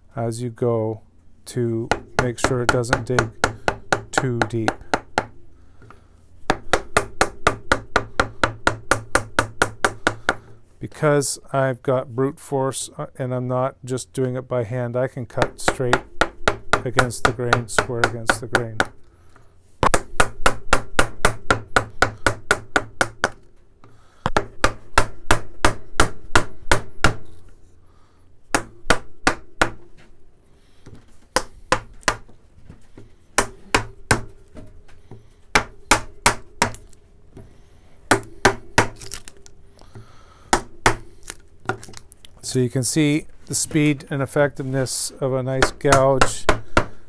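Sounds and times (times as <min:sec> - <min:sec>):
mallet tapping a gouge: 0:01.9 - 0:05.4, 0:06.5 - 0:10.4, 0:15.4 - 0:19.0, 0:24.3 - 0:27.3, 0:33.4 - 0:34.7, 0:35.5 - 0:37.5.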